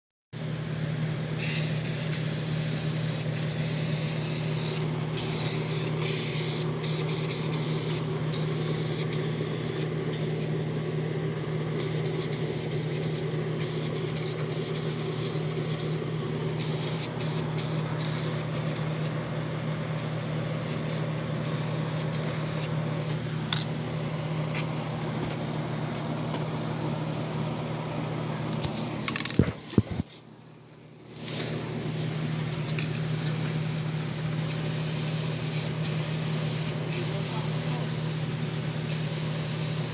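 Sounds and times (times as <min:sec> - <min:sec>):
steady low hum: 0:00.4 - 0:39.9
spray paint hissing: 0:01.4 - 0:10.5, 0:11.8 - 0:16.0, 0:16.6 - 0:19.1, 0:20.0 - 0:22.7, 0:34.5 - 0:37.8, 0:38.9 - 0:39.9.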